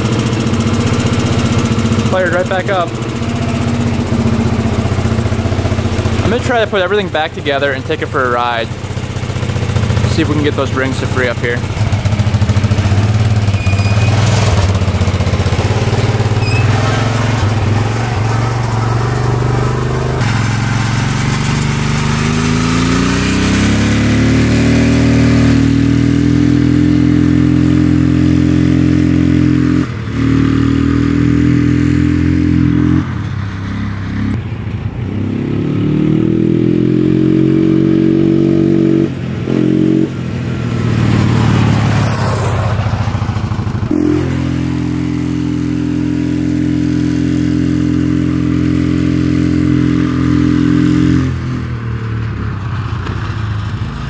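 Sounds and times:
atv engine revving: 0:00.0 - 0:34.4, 0:35.1 - 0:54.0.

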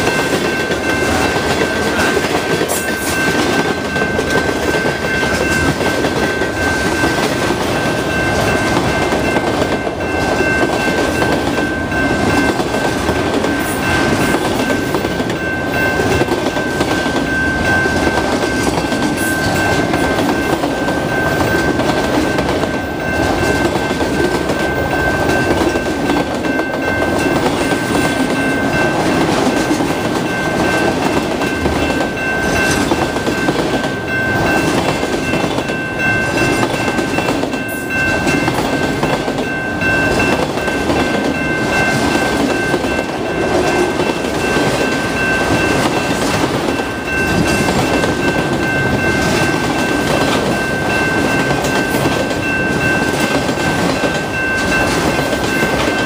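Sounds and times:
crossing warning bell: 0:00.0 - 0:56.0.

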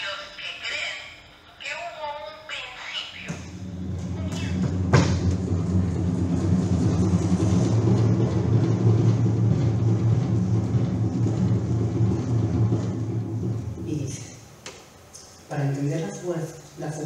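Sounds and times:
low rumbling drone: 0:03.2 - 0:14.6.

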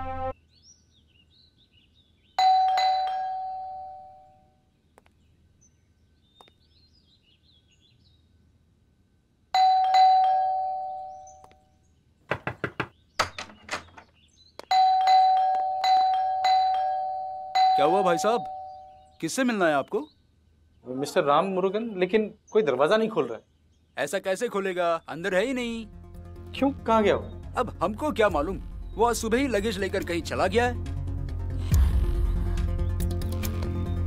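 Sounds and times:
two-tone doorbell chime: 0:02.4 - 0:04.3, 0:09.6 - 0:11.4, 0:14.7 - 0:19.0
knocking on door: 0:12.3 - 0:14.1.

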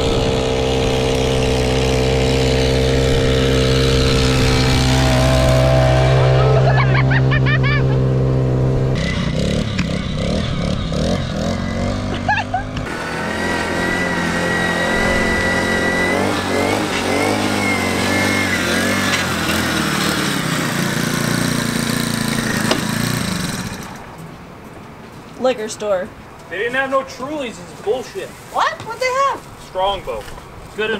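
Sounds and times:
small gasoline engine running: 0:00.0 - 0:24.2.

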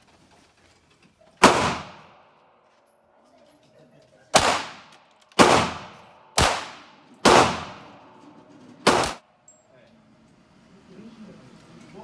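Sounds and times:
handgun shots with ringing echo: 0:01.4 - 0:02.1, 0:04.4 - 0:08.0, 0:08.8 - 0:09.2.

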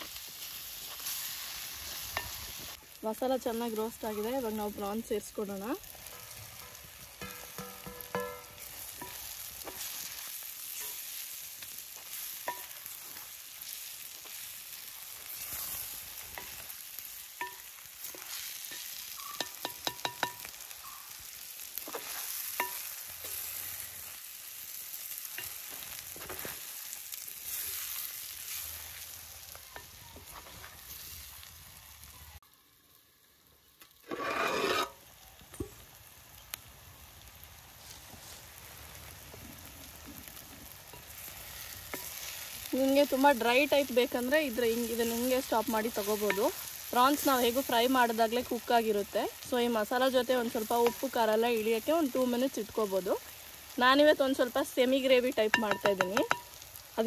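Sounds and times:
prawns sizzling in a pan: 0:00.0 - 0:57.0
spatula scraping and clinking on pan: 0:01.8 - 0:02.6, 0:05.9 - 0:14.4, 0:15.2 - 0:23.6, 0:25.3 - 0:26.6, 0:34.0 - 0:35.0, 0:40.9 - 0:42.6, 0:55.5 - 0:56.6.

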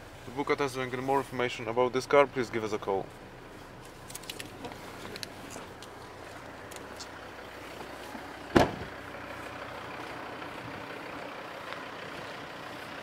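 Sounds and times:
diesel engine idling: 0:00.0 - 0:13.0
car door shutting: 0:07.8 - 0:09.0.

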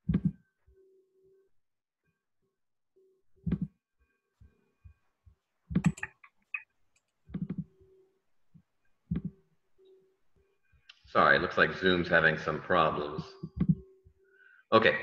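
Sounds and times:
computer keys clicking: 0:05.8 - 0:06.3.

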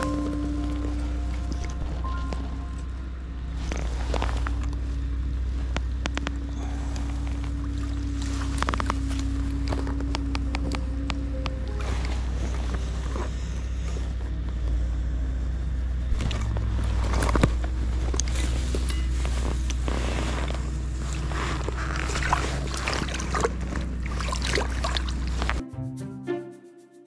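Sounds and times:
river water splashing: 0:00.0 - 0:05.1, 0:06.6 - 0:10.1, 0:20.8 - 0:25.6
low rumble: 0:00.0 - 0:25.6.

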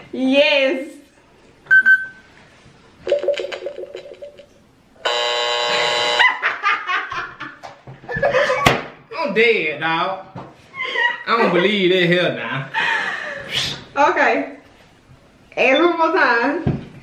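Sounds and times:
short beep: 0:01.7 - 0:02.2
harsh buzzer: 0:05.0 - 0:06.4
people laughing: 0:06.2 - 0:08.7.

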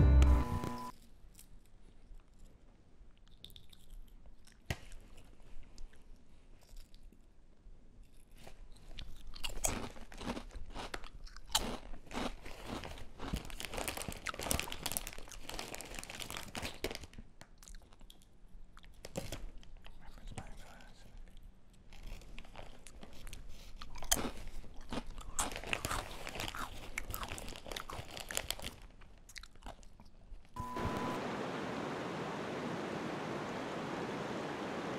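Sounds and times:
person crunching and chewing snack: 0:03.2 - 0:05.4, 0:08.0 - 0:20.0, 0:21.3 - 0:30.5.

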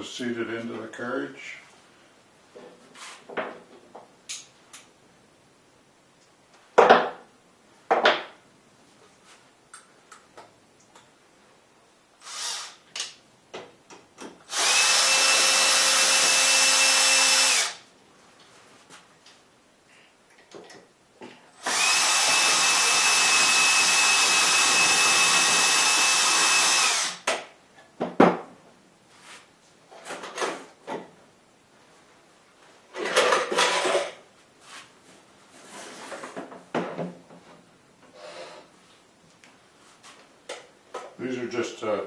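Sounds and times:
electric drill whining: 0:12.2 - 0:12.8, 0:14.5 - 0:17.8, 0:21.6 - 0:27.3
knocks and scraping of handling: 0:32.6 - 0:37.7.

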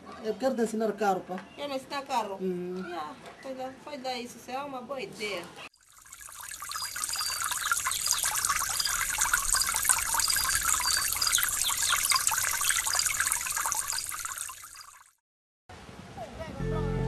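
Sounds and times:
trickling water splashing: 0:05.7 - 0:15.2.

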